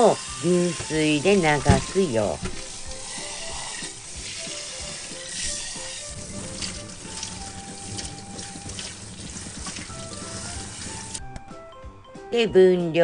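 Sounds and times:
light background music: 0.0s - 13.0s
tap water splashing into sink: 1.4s - 11.2s.

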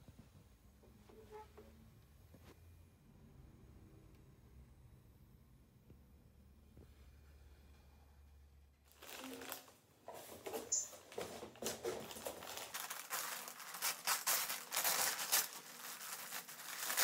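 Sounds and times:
wrapping paper crinkling and tearing: 8.9s - 9.8s, 11.6s - 17.0s.

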